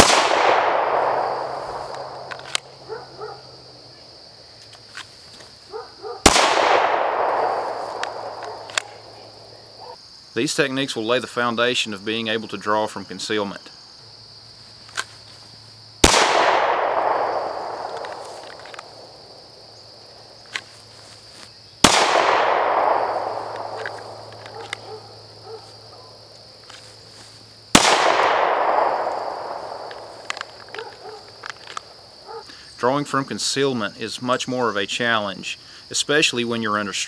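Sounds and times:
handgun shots with echo: 0:00.0 - 0:02.7, 0:06.3 - 0:09.0, 0:16.0 - 0:18.9, 0:21.8 - 0:24.9, 0:27.8 - 0:31.1
crickets chirping: 0:00.0 - 0:37.0.

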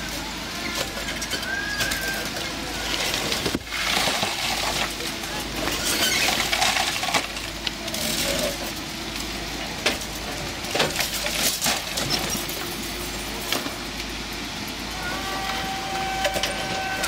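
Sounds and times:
excavator engine running: 0:00.0 - 0:17.0.

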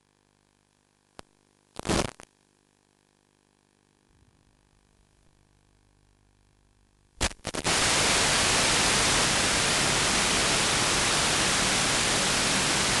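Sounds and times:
static crackles: 0:00.4 - 0:03.9, 0:07.0 - 0:13.0
radio static hiss: 0:01.2 - 0:02.4, 0:07.2 - 0:13.0.

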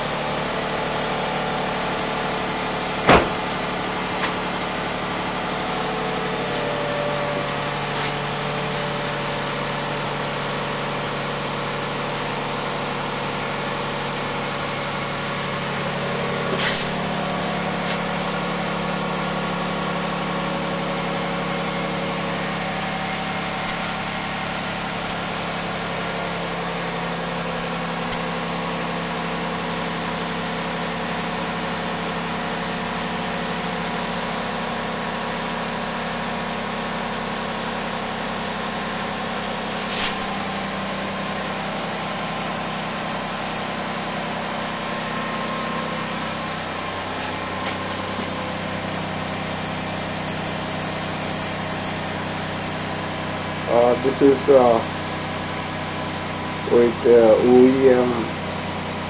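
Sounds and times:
car engine idling: 0:00.0 - 0:59.0.

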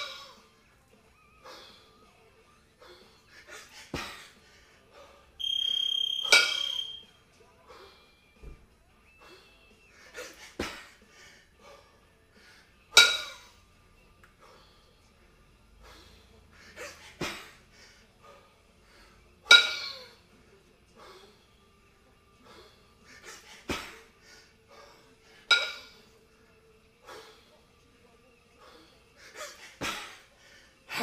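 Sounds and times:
kettlebells clinking together: 0:05.6 - 0:07.0, 0:12.9 - 0:13.5, 0:19.4 - 0:20.1, 0:25.5 - 0:26.0.

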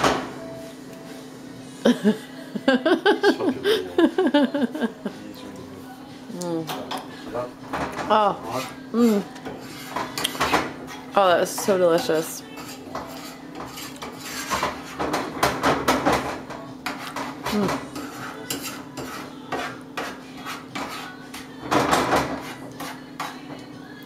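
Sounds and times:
metal spoon scraping frying pan: 0:08.3 - 0:23.5.

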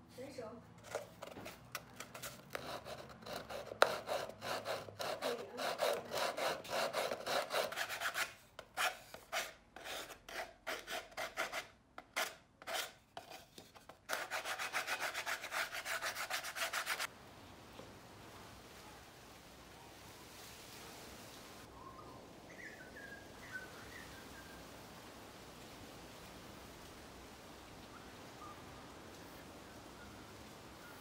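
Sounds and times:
sandpaper rubbing on plywood: 0:01.4 - 0:17.1.

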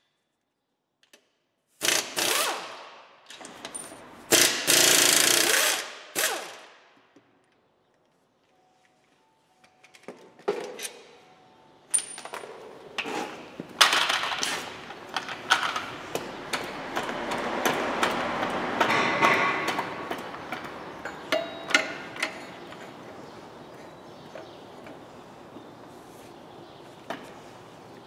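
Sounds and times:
tools clinking on metal: 0:18.4 - 0:23.0.

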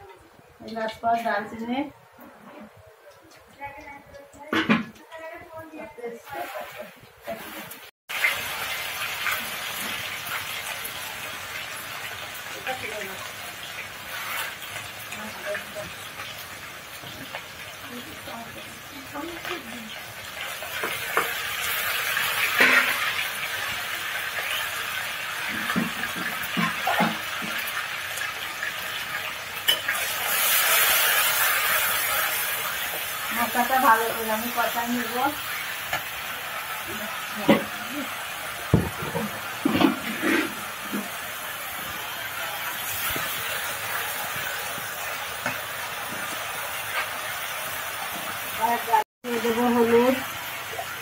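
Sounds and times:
spice paste sizzling in oil: 0:06.2 - 0:51.0
spoon knocking against pan: 0:38.7 - 0:40.0
metal spatula scraping pan: 0:38.9 - 0:41.2.

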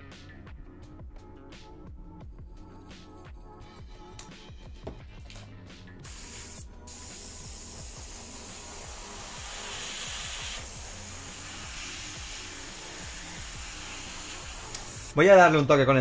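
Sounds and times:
airbrush hissing: 0:06.0 - 0:15.2.

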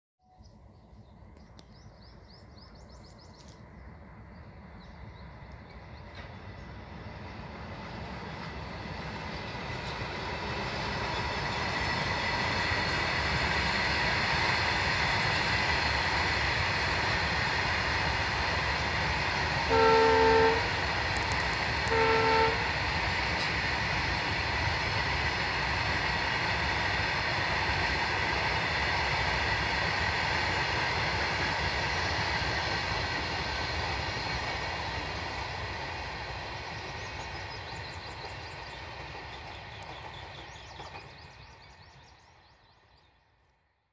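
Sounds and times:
freight train rolling past: 0:00.3 - 0:43.5
locomotive horn blasts: 0:19.7 - 0:20.8, 0:21.8 - 0:22.8.

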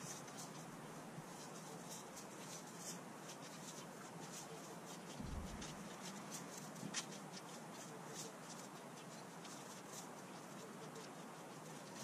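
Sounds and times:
rakes scratching through dry grass: 0:00.0 - 0:12.0
low rumble: 0:05.2 - 0:05.6.

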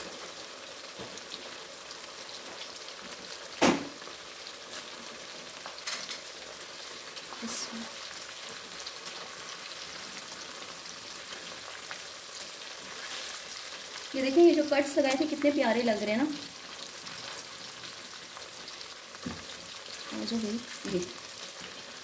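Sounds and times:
meat sizzling in hot oil: 0:00.0 - 0:22.0
sharp loud knock: 0:03.6 - 0:04.0.

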